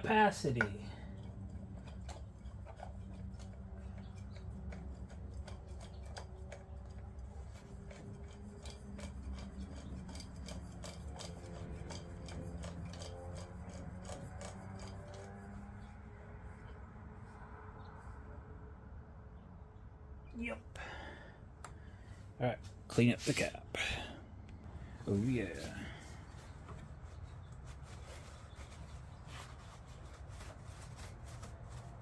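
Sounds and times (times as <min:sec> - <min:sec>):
steady low hum: 0:00.0 - 0:32.0
hands threading oil filter: 0:00.1 - 0:16.8, 0:24.7 - 0:32.0.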